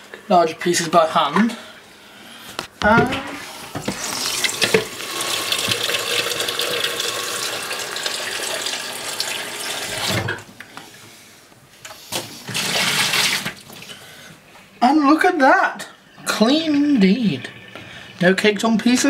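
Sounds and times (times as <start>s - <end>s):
tap water splashing in sink: 3.8s - 9.3s.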